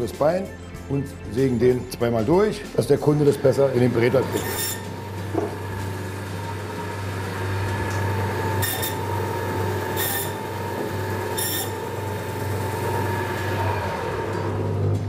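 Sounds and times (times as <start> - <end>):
band saw humming: 0.0 - 15.0
saw blade screeching through bone: 4.2 - 5.0, 8.5 - 12.0.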